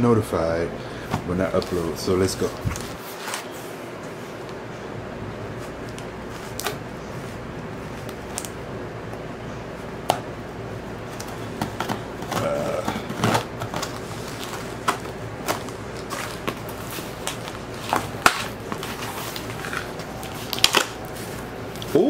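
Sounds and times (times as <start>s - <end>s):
cardboard scraping and rustling: 1.5s - 3.8s, 11.1s - 21.5s.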